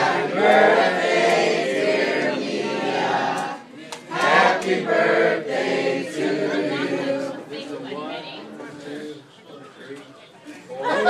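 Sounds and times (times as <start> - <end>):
group of people singing: 0.0 - 7.8.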